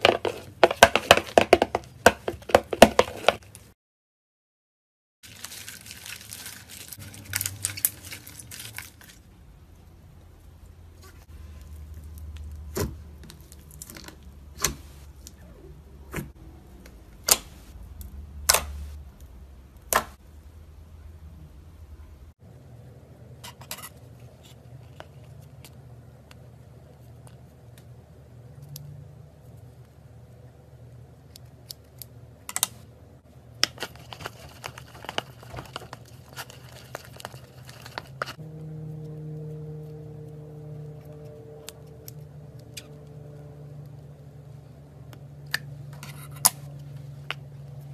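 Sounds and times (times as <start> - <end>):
stick stirring in plastic bowl: 0.0 - 3.6, 33.6 - 38.4
low steady hum: 5.3 - 47.9.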